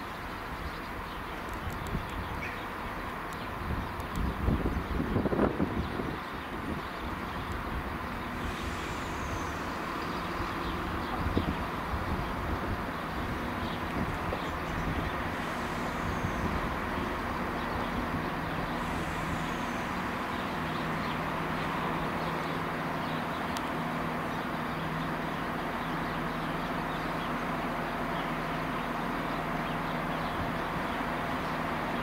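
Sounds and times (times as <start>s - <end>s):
train diesel engines humming: 0.0s - 32.0s.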